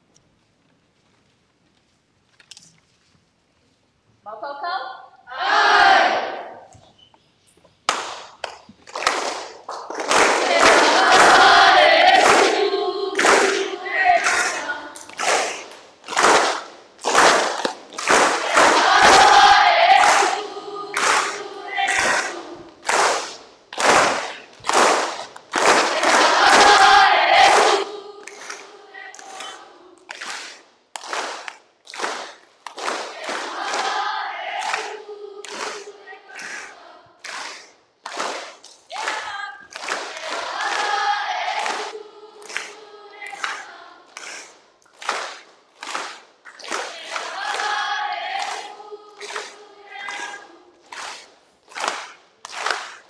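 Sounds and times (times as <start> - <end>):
group of voices chanting: 5.3 - 6.7, 10.0 - 30.6, 32.8 - 53.0.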